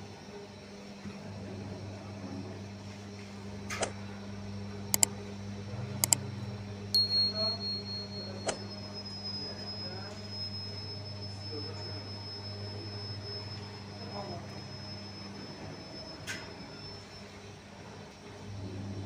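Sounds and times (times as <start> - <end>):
machinery electric hum: 0.0 - 19.0
thin high tone: 7.0 - 17.5.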